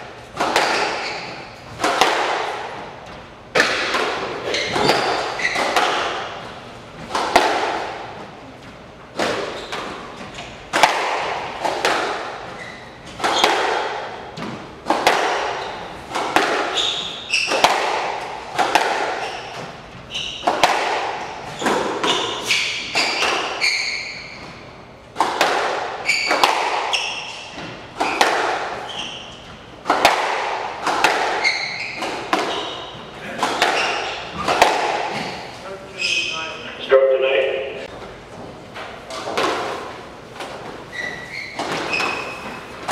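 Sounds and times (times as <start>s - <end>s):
shoes squeaking on wooden floor: 0.3s - 1.9s, 4.1s - 7.2s, 8.0s - 10.7s, 12.3s - 14.7s, 15.4s - 25.0s, 25.9s - 30.1s, 30.8s - 36.7s, 37.8s - 42.9s
squash ball smacks: 0.3s - 2.8s, 3.5s - 8.1s, 9.1s - 10.0s, 10.6s - 12.5s, 13.1s - 19.8s, 20.4s - 23.6s, 25.1s - 28.8s, 29.8s - 35.5s.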